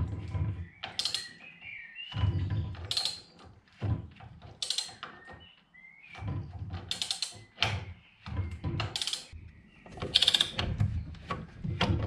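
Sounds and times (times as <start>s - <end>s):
metallic ratchet clicks and clunks: 0.9s - 1.4s, 2.8s - 3.3s, 4.5s - 5.2s, 6.9s - 7.8s, 8.8s - 9.4s, 10.0s - 10.7s.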